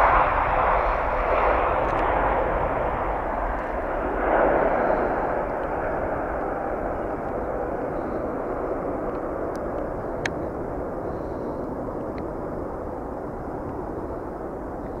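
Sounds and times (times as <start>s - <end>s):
jet airliner climbing away: 0.0s - 15.0s
faint click: 9.1s - 10.4s.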